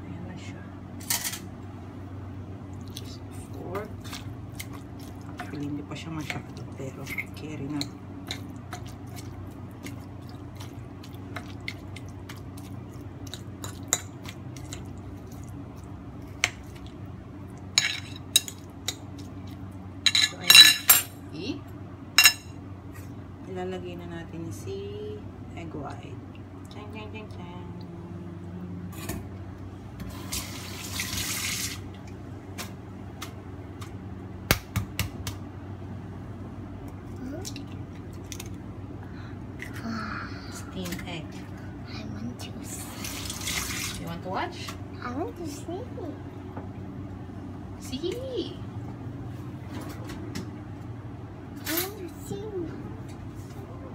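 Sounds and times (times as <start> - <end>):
low steady hum: 0.0 - 53.9
fork mixing meat in a bowl: 2.8 - 17.0
running tap water: 30.1 - 31.9, 42.8 - 44.1.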